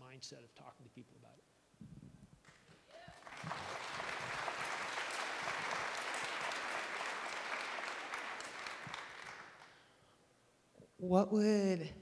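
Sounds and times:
audience applauding: 3.0 - 9.9.

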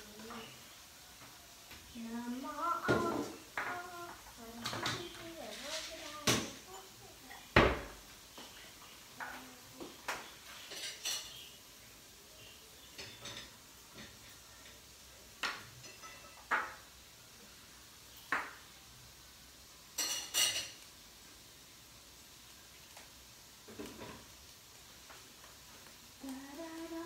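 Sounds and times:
cookware and utensils clinking: 2.8 - 11.6, 12.8 - 17.0, 19.9 - 20.9, 23.7 - 24.3.

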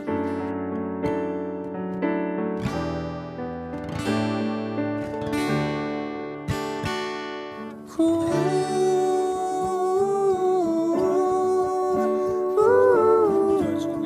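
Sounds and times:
acoustic guitar strumming: 0.0 - 14.0
person humming: 8.0 - 14.0.

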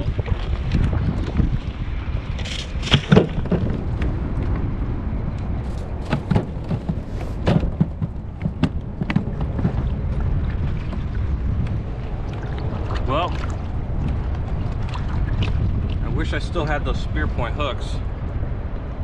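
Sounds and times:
wind rumbling on microphone: 0.0 - 19.0
thumps and knocks: 2.8 - 4.1, 6.0 - 11.8.

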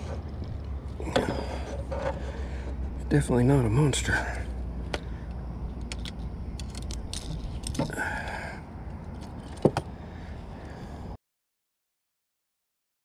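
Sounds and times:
low steady rumble: 0.0 - 11.2
metallic clicks of pliers: 5.7 - 7.9.

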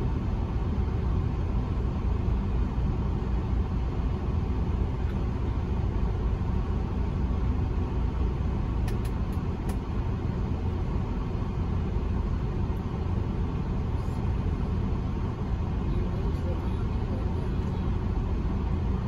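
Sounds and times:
diesel truck engine idling: 0.0 - 19.0.

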